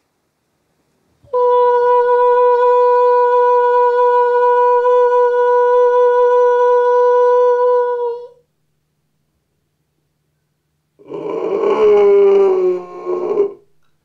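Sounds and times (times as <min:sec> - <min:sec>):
man holding high note: 0:01.3 - 0:08.4, 0:11.0 - 0:13.7.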